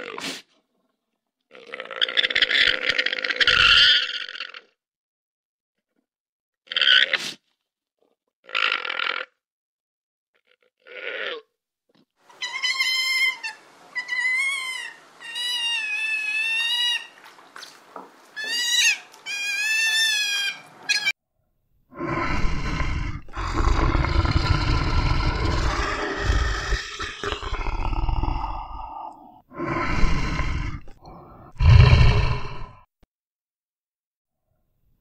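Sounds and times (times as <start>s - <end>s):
sea otter squealing: 12.3s - 17.3s, 18.4s - 21.1s
bear growling: 21.9s - 32.9s.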